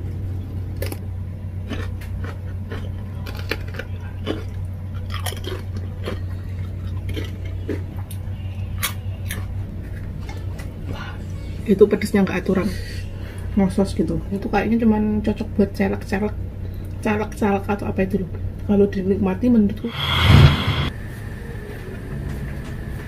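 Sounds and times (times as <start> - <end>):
crunching and chewing chips: 0.6 - 11.0
steady low hum: 19.6 - 21.0.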